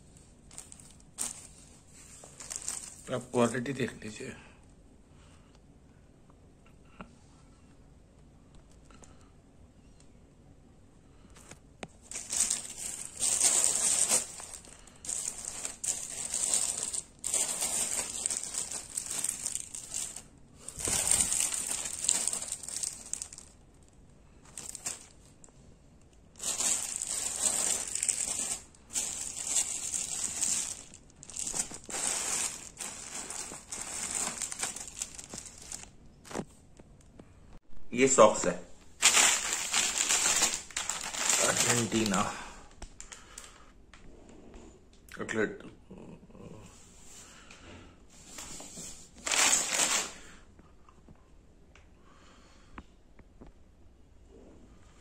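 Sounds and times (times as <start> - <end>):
plastic packets crinkling: 0.4 - 3.7, 11.4 - 25.4, 26.3 - 36.4, 39.0 - 42.4, 49.2 - 50.4.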